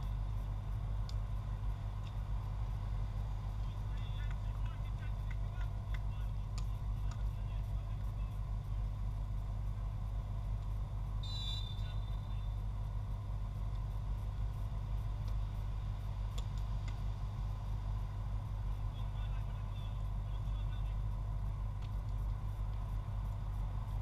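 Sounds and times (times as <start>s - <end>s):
low background rumble: 0.0s - 24.0s
referee whistle blast: 11.2s - 12.3s.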